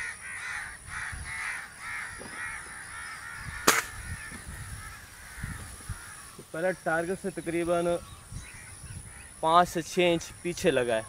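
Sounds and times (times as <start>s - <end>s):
bird calling: 0.0s - 11.0s
air rifle shot: 3.6s - 4.0s.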